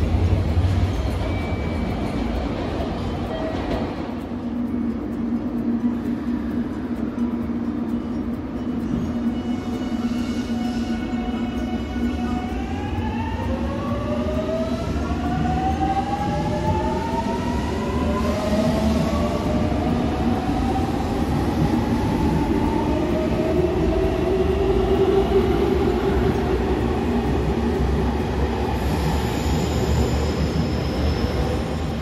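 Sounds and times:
rail rumble: 0:00.0 - 0:32.0.

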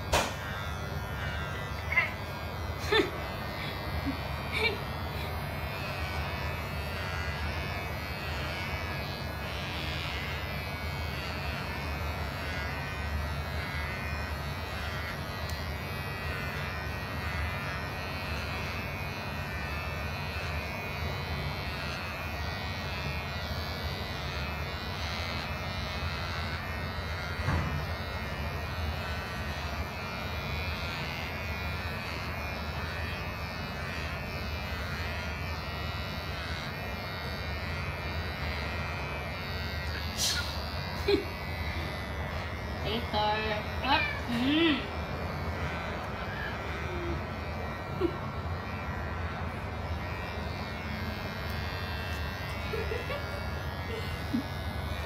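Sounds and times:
electric hair clipper buzzing: 0:00.0 - 0:55.0
brief knock: 0:00.1 - 0:00.4.

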